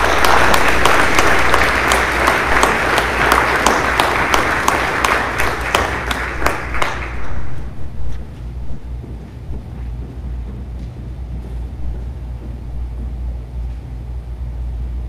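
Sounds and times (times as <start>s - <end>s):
audience applauding: 0.0s - 8.0s
steady low hum: 0.0s - 15.0s.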